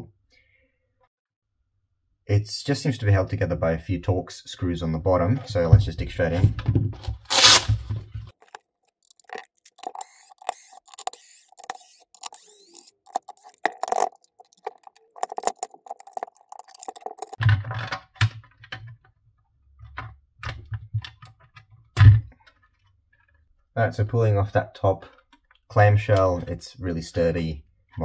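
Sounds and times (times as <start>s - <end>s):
plastic case creaking as pried: 7.0s - 18.5s
plastic case clicking and rattling: 8.4s - 18.9s.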